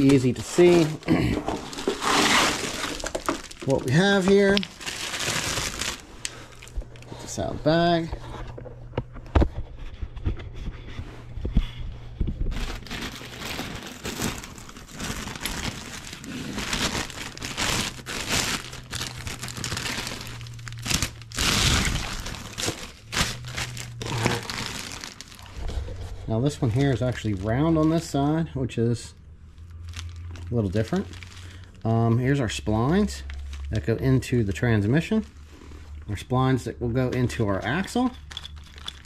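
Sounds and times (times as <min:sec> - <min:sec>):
packaging bag crinkling: 0:00.0 - 0:07.5, 0:12.5 - 0:28.4, 0:29.6 - 0:31.9, 0:37.7 - 0:39.0.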